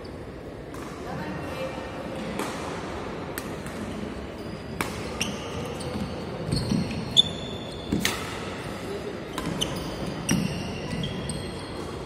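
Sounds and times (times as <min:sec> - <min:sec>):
racket hitting shuttlecock: 0:02.2 - 0:03.9, 0:04.8 - 0:07.0, 0:07.9 - 0:08.6, 0:09.3 - 0:11.1
shoe squeaks: 0:04.4 - 0:08.2, 0:09.2 - 0:12.0.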